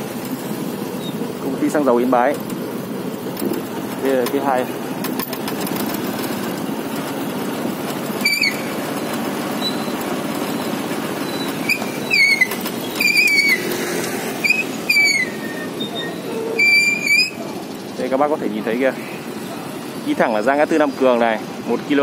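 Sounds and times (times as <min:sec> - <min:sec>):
vehicle engine running: 0:00.0 - 0:22.0
short high squeals: 0:08.2 - 0:17.6.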